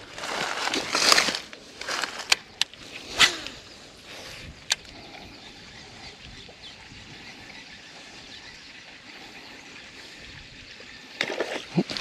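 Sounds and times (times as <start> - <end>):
faint bird chirps: 2.5 - 11.7.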